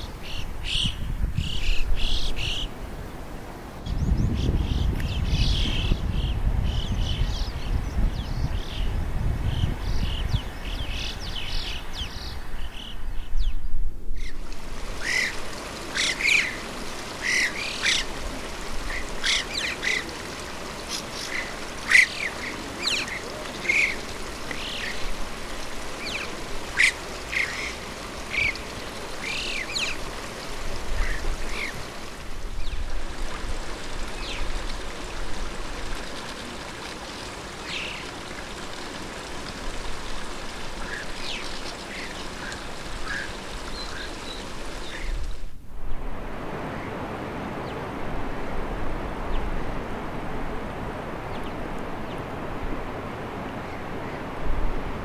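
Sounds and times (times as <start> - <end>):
birds chirping calls: 0.0 - 2.8, 3.8 - 33.3, 34.1 - 39.2, 39.8 - 45.2
steady background hiss: 0.0 - 55.0.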